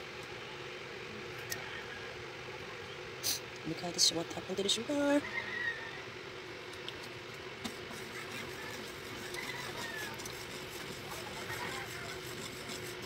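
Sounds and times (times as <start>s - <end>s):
low steady hum: 0.0s - 13.0s
syrup bubbling in a wok: 6.9s - 13.0s.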